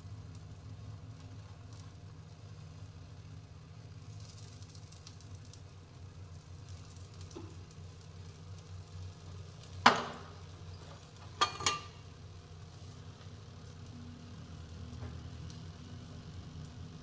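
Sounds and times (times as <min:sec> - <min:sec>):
faint sizzle in frying pan: 0:00.0 - 0:17.0
utensil striking pan: 0:09.8 - 0:10.3, 0:11.3 - 0:12.0.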